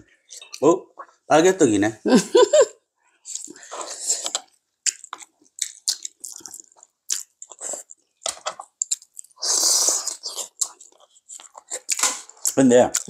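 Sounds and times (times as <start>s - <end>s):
people chewing and sucking: 0.2s - 1.2s, 3.2s - 13.0s
sucking slurp: 9.4s - 10.8s.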